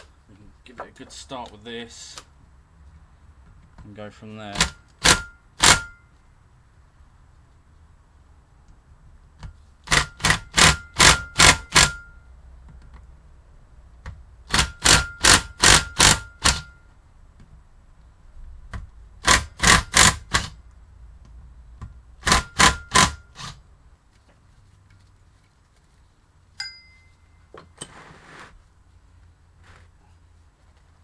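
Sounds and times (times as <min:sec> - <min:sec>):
impact driver hammering in bursts: 0:04.5 - 0:06.1, 0:09.8 - 0:12.2, 0:14.4 - 0:16.8, 0:19.2 - 0:20.6, 0:22.2 - 0:23.6.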